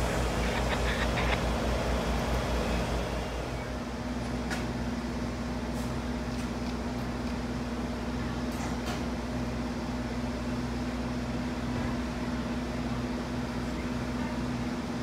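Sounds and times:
passing train pulsing: 0.0 - 5.6
steady mechanical hum: 0.0 - 15.0.

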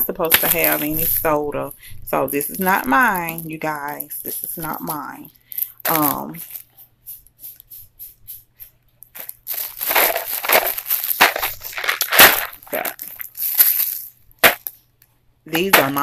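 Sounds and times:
plastic bag crinkling and rustling: 0.2 - 1.4, 9.1 - 14.8
sharp plastic crackle: 9.1 - 14.8.

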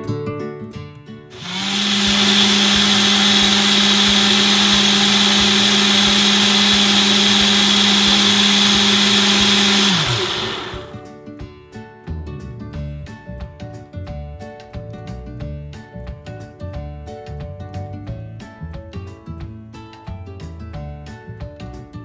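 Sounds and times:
blender motor running: 1.3 - 11.0.

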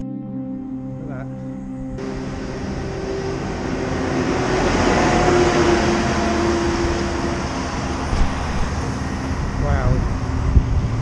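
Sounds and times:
road noise: 1.9 - 11.0
wheel loader diesel engine: 2.0 - 11.0.

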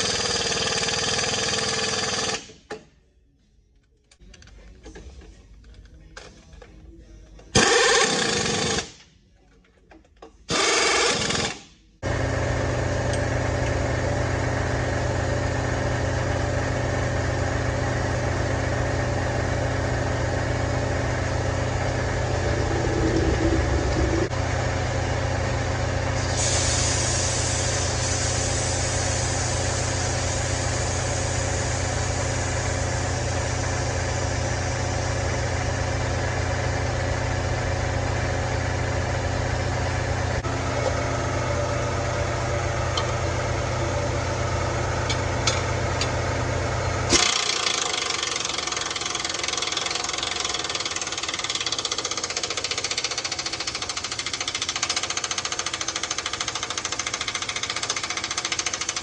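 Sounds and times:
low mechanical hum: 11.8 - 48.9.

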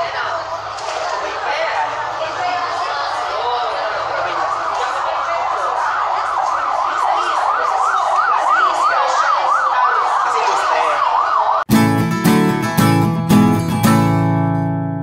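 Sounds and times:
background chatter: 0.0 - 11.6
siren yelping: 3.9 - 11.7.

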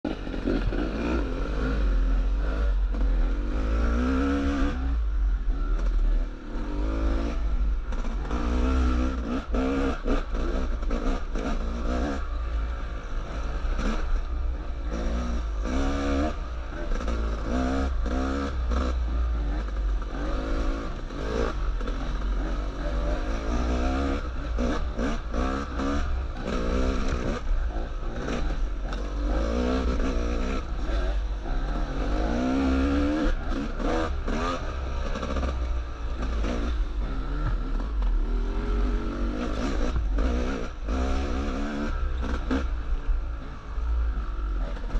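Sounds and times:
dirt bike engines revving: 0.1 - 44.9.

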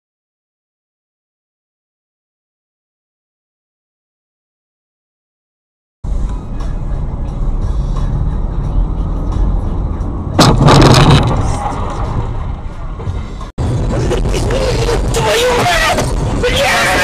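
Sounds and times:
road and engine rumble: 6.0 - 17.0
loud sudden crash: 10.4 - 12.6.

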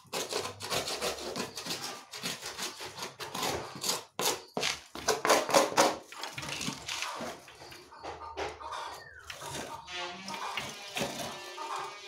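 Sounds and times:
stick scraping cage tray: 0.0 - 12.0.

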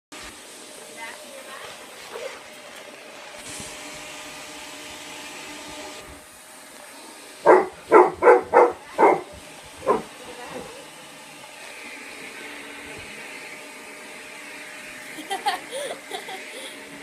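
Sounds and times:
vacuum cleaner motor humming: 0.1 - 17.0
dog barking: 7.4 - 10.1.

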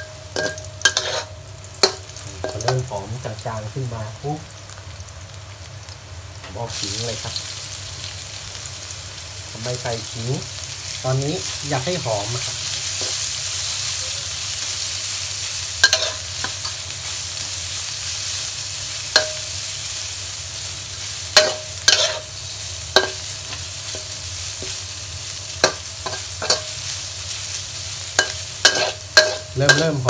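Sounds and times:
spatula knocking and scraping wok: 0.0 - 2.9, 15.8 - 16.8, 19.1 - 19.6, 21.3 - 24.9, 25.6 - 26.9, 28.1 - 30.0
food sizzling in a wok: 0.0 - 30.0.

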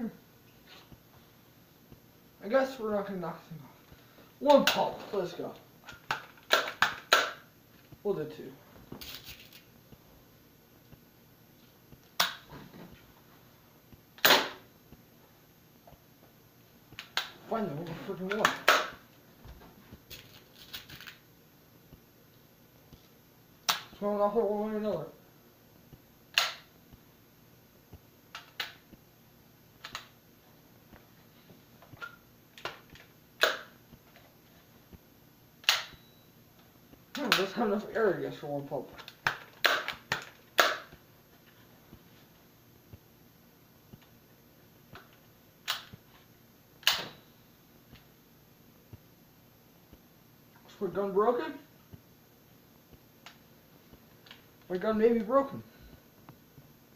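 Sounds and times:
air gun clicks and snaps: 26.3 - 26.7, 32.0 - 33.7, 35.6 - 36.0, 45.0 - 46.0.

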